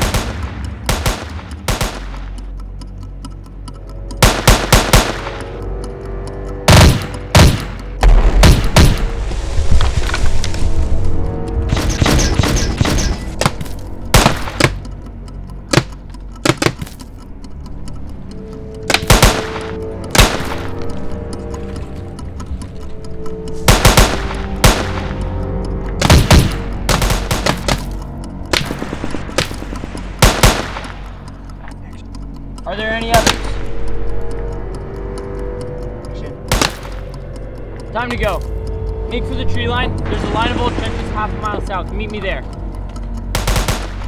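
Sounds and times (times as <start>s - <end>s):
gunfire: 0.0s - 2.3s, 4.2s - 5.4s, 6.7s - 9.1s, 23.7s - 25.0s, 30.2s - 30.9s, 43.4s - 44.0s
music score: 17.2s - 44.0s.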